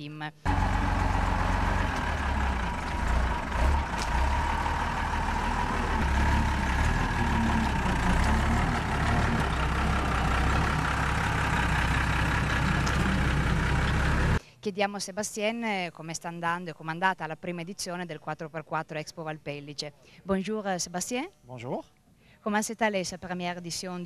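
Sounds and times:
truck diesel engine under load: 0.4s - 14.4s.

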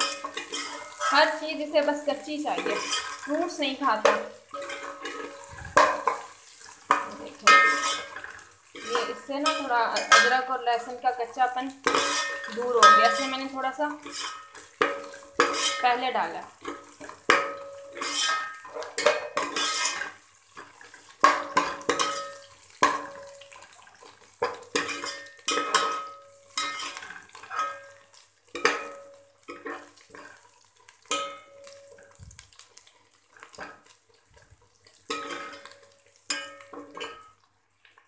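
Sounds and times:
steel ladle scraping metal pot: 0.0s - 1.6s, 2.4s - 11.0s, 11.8s - 23.3s, 24.4s - 28.0s, 35.1s - 37.3s.

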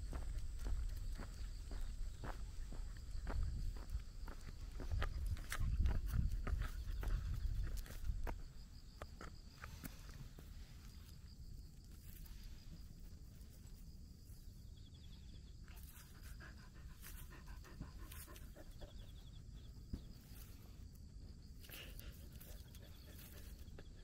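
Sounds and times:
insects trilling: 0.0s - 24.0s
dog panting: 16.0s - 19.4s.

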